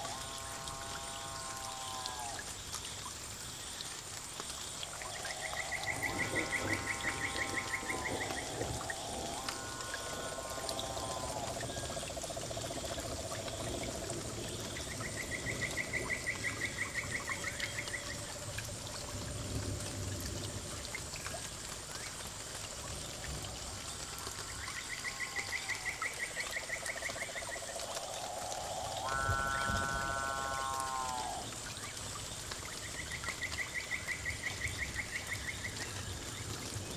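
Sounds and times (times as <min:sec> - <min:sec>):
water trickling: 0:00.0 - 0:36.9
frog trilling: 0:05.1 - 0:12.4, 0:25.0 - 0:31.5.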